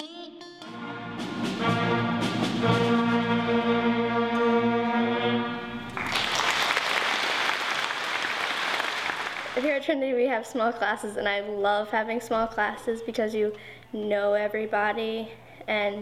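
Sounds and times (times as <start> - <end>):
audience applause: 5.8 - 9.7.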